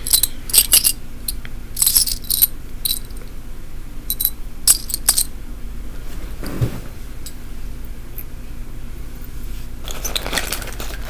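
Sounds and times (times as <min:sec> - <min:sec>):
metal buttons clinking: 0:00.0 - 0:03.2.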